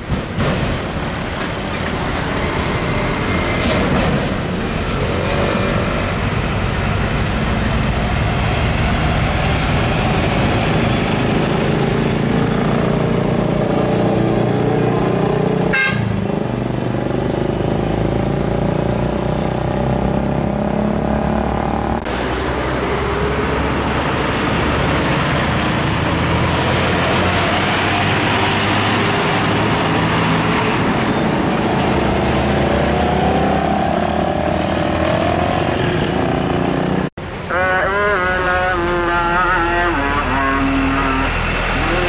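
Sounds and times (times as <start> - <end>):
diesel truck engine hum: 0.0 - 42.0
truck passing close: 0.0 - 42.0
engine rising in pitch: 17.1 - 37.1.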